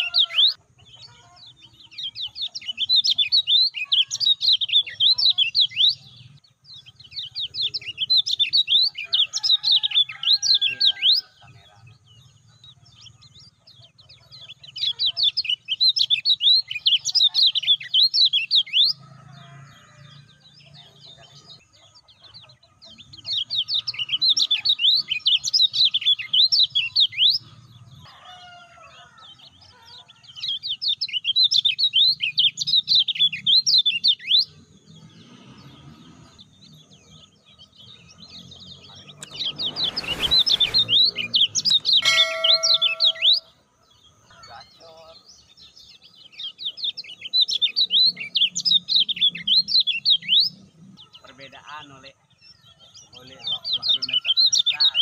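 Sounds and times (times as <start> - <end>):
bird singing high chirping song: 0.0 - 55.0
rush of noise: 39.2 - 43.0.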